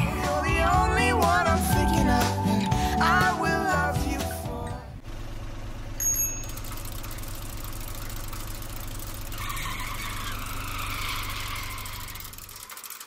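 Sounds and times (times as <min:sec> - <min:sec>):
van engine humming: 0:00.0 - 0:12.9.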